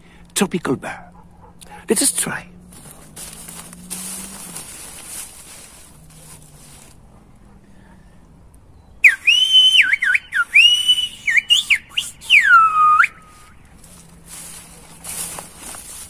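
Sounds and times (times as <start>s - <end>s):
person whistling speech: 9.0s - 13.3s.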